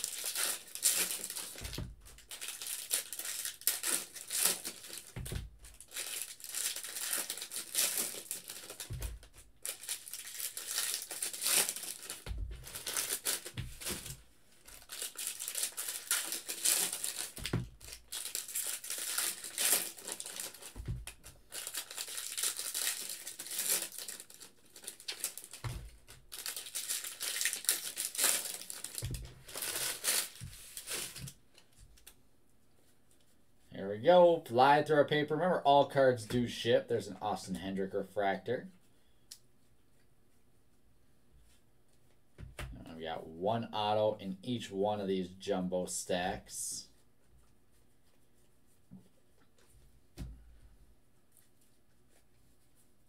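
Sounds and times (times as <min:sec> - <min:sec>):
foil wrappers tearing and crinkling: 0:00.0 - 0:31.4.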